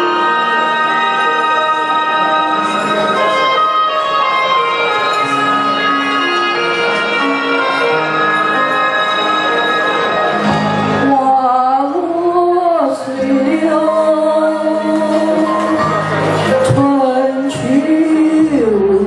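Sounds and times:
keyboard chords backing track: 0.0s - 19.0s
woman singing a slow ballad: 11.0s - 19.0s.

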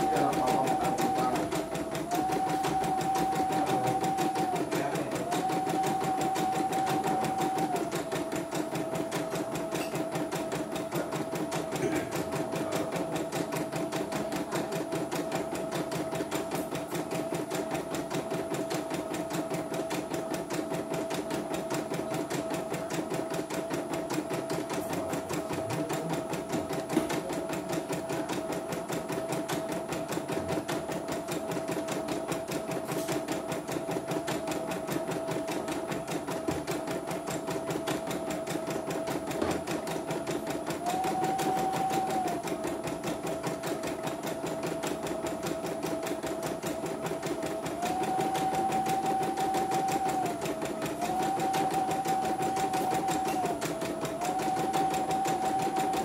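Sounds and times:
motor whine: 0.0s - 7.9s
embroidery machine needle clatter: 0.0s - 56.0s.

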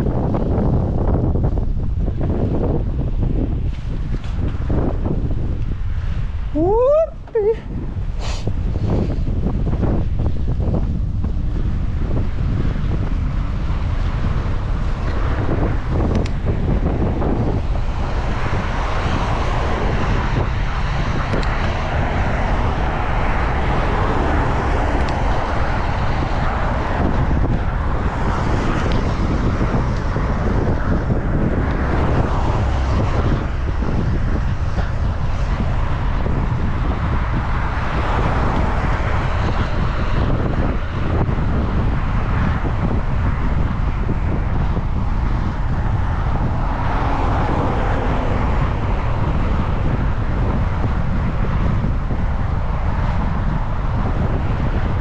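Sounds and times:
road hiss and passing traffic: 0.0s - 55.0s
wind noise on microphone: 0.0s - 55.0s.

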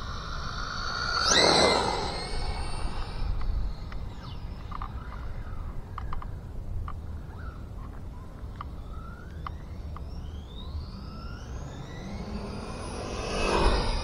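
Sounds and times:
electric motor whine: 0.0s - 5.6s, 8.8s - 14.0s.

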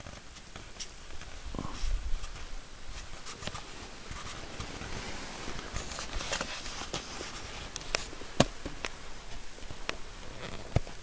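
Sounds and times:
camera handling rustling: 3.0s - 11.0s.

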